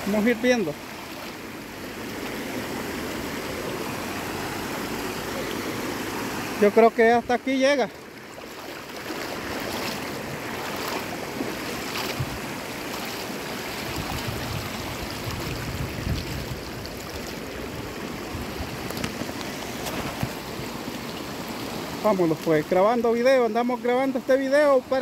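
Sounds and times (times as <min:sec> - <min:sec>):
river water rushing over stones: 0:00.0 - 0:25.0.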